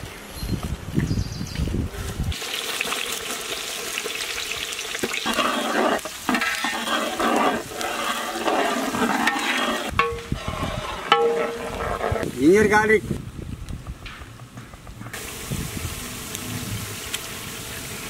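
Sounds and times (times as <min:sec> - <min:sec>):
onions sizzling in hot oil: 0:02.3 - 0:10.3, 0:15.2 - 0:18.0
ladle stirring: 0:05.0 - 0:12.2.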